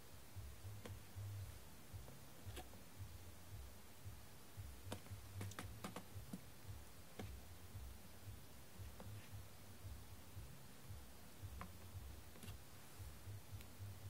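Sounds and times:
faint low hum: 0:00.0 - 0:14.0
wooden stick tapping plastic case: 0:04.9 - 0:06.5.

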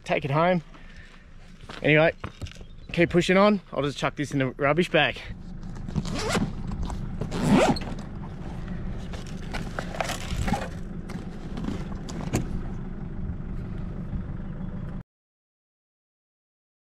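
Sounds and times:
low rumble: 0:05.1 - 0:15.0
bag scrapes and clicks: 0:05.6 - 0:12.3
zipper pulled open: 0:05.9 - 0:10.8.

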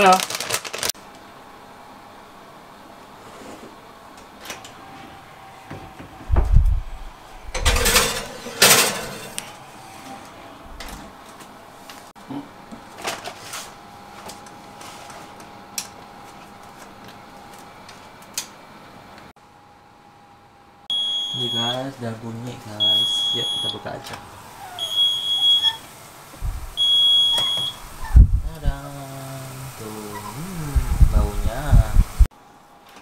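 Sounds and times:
heavy deep thuds: 0:06.3 - 0:07.0.

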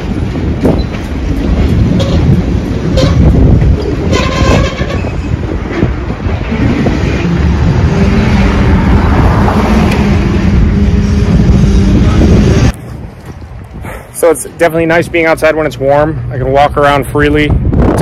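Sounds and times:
train cars clanking: 0:00.0 - 0:13.4
train wheels rumbling on rail: 0:00.0 - 0:16.3.

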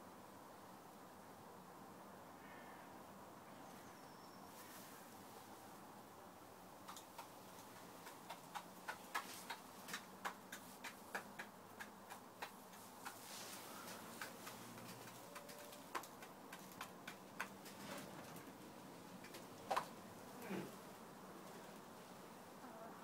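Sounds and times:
hen beak pecking plastic dish: 0:06.8 - 0:18.4.

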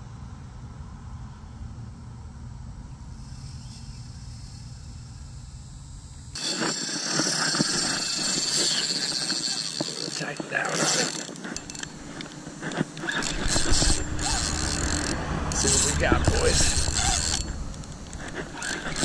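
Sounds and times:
low rumble of road traffic: 0:00.0 - 0:06.4, 0:10.2 - 0:19.0
fishing reel clicking and rattling: 0:06.3 - 0:19.0.

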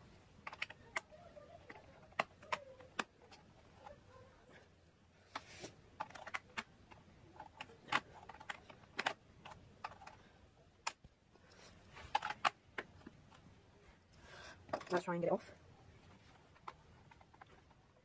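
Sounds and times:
screwdriver clicking and scraping: 0:05.3 - 0:10.2.

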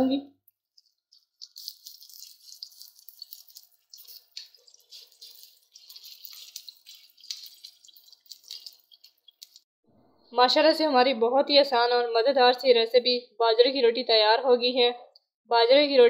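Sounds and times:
dough sizzling in hot ghee: 0:00.4 - 0:09.7.

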